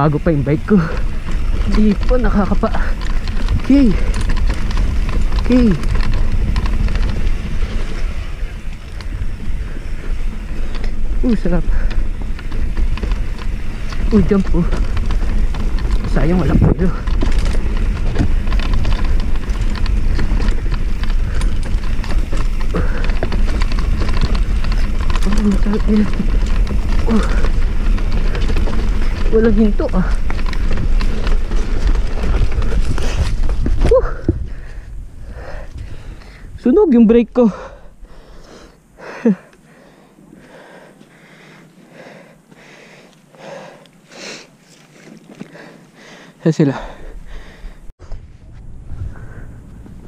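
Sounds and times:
wind buffeting microphone: 0.0s - 43.8s, 45.0s - 50.0s
bike rattling over bumps: 0.0s - 50.0s
person panting: 22.6s - 23.5s, 26.9s - 28.4s, 32.2s - 36.6s, 37.4s - 47.9s, 48.9s - 49.8s.

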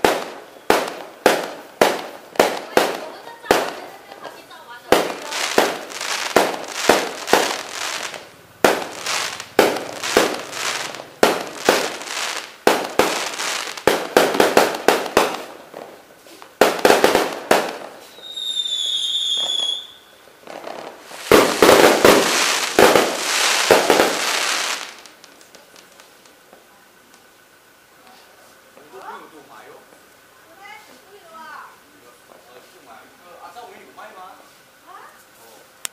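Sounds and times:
firework whistle: 0.0s - 15.6s, 16.2s - 25.8s
fireworks bangs: 0.0s - 26.6s
fireworks crackle: 0.0s - 35.9s.

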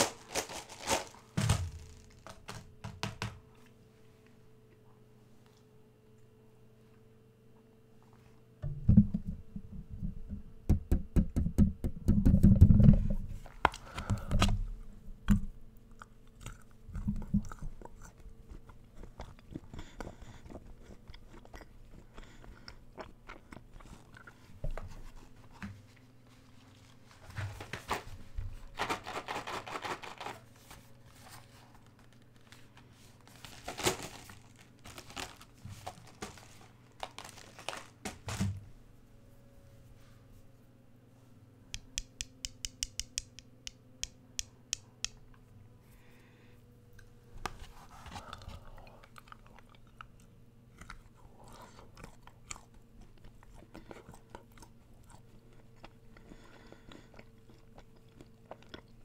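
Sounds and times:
chewing and crunching chocolates: 15.3s - 26.1s, 47.9s - 59.0s.

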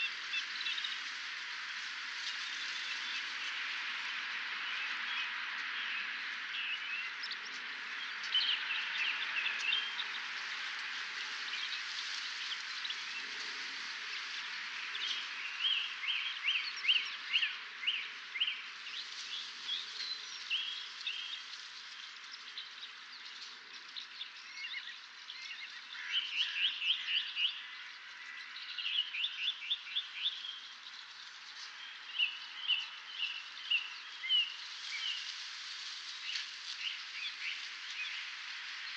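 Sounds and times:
songbirds singing: 0.0s - 38.9s
steady hiss: 30.0s - 38.9s.

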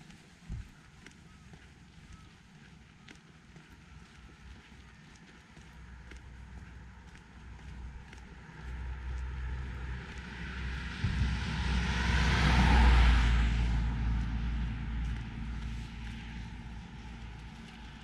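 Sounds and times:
vehicle passing by: 6.1s - 18.0s.

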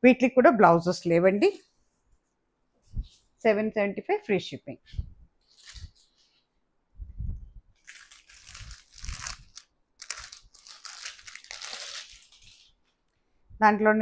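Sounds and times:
plastic packet crinkling: 5.5s - 6.2s, 7.8s - 12.8s.

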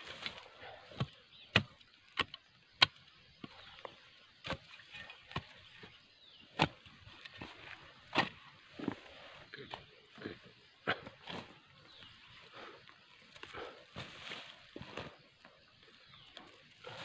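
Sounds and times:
shovel and machete chopping soil: 0.0s - 9.8s, 10.9s - 11.6s.

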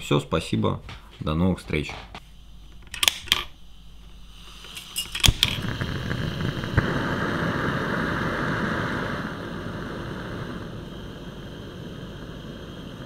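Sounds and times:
gas hissing: 1.8s - 13.0s
lantern igniter clicks: 2.8s - 3.5s, 4.7s - 9.2s.

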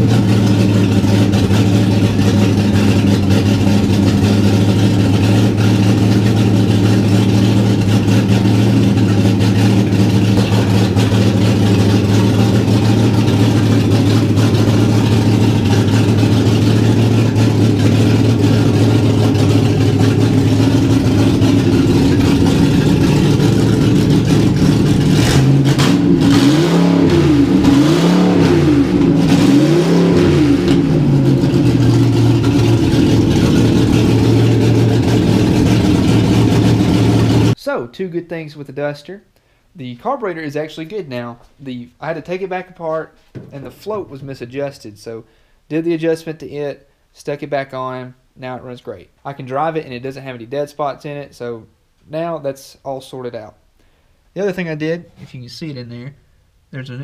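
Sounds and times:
loud truck engine idling and revving: 0.0s - 37.6s.

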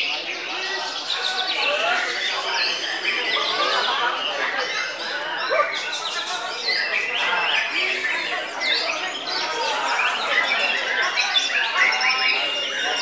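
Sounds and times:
other birds chirping: 0.0s - 13.0s.

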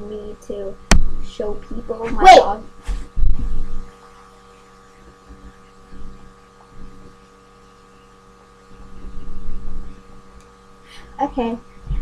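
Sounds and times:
electrical hum: 0.0s - 12.0s
soft low thumps: 0.8s - 1.3s, 2.0s - 3.9s
low rumble: 0.9s - 3.9s.

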